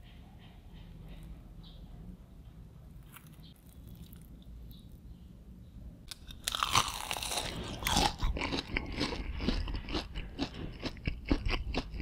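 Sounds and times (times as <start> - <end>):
crunchy chewing: 3.0 - 4.8, 6.1 - 12.0
loud crunch of biting: 6.1 - 12.0.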